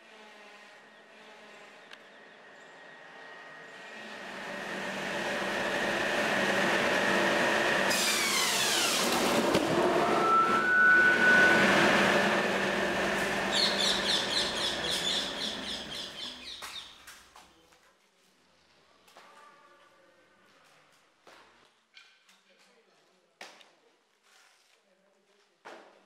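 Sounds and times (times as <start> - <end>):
circular saw whining: 0.0 - 16.6.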